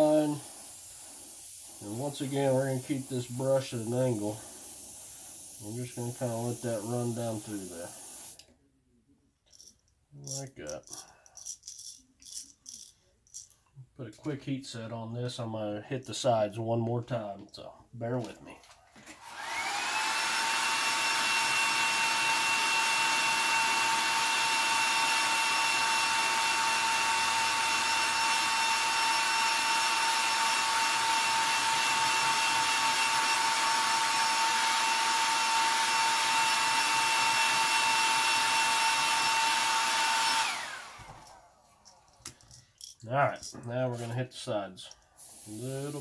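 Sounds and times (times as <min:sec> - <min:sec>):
hair dryer blowing: 0:00.0 - 0:08.4, 0:19.0 - 0:41.6, 0:45.2 - 0:46.0.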